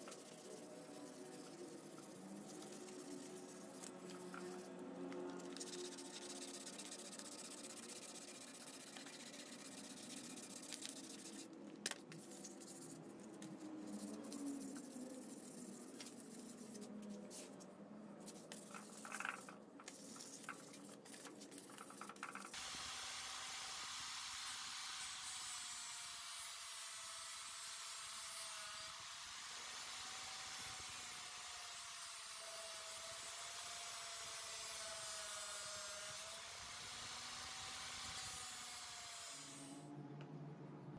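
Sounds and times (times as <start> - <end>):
sandpaper scratching on wood: 0.0 - 11.5, 12.2 - 17.6, 18.3 - 22.6.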